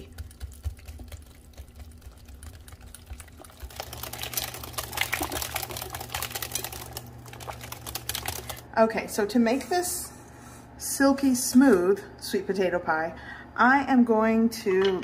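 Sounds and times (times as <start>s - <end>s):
wet sloshing batter: 0.0s - 8.6s.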